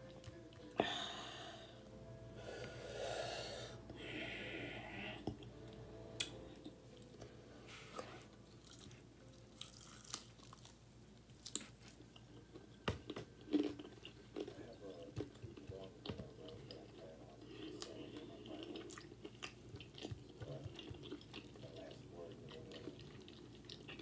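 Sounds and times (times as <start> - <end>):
wet chewing: 8.0 - 24.0
crunching fried chicken: 8.6 - 12.6.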